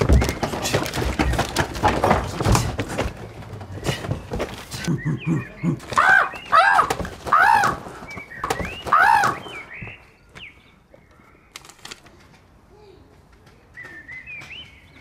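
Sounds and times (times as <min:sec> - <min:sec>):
loud high vocal cries: 0:05.9 - 0:07.9, 0:08.8 - 0:09.6.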